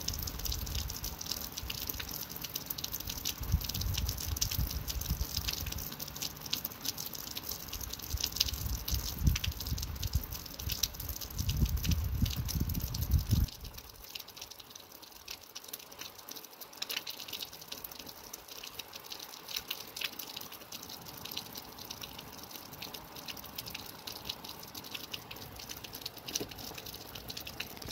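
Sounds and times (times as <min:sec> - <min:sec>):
rain hissing: 0:00.0 - 0:14.0
raindrops ticking: 0:00.0 - 0:27.9.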